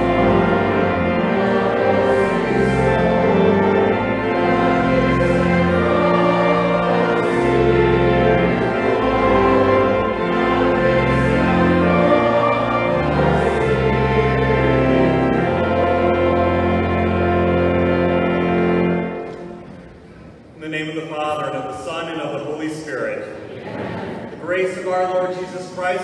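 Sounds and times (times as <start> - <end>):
choir singing a hymn: 0.0 - 19.6
instrumental accompaniment: 0.0 - 22.5.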